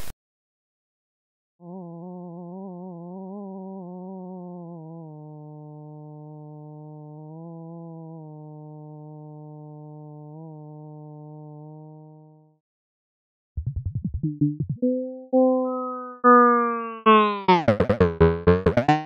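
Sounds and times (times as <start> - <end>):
synthesized buzzy tone: 13.6 - 19.0.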